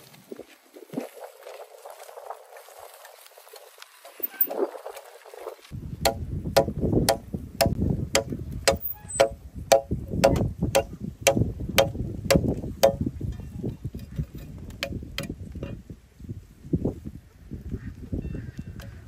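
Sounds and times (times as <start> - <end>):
machete chopping wood: 6.0 - 13.0.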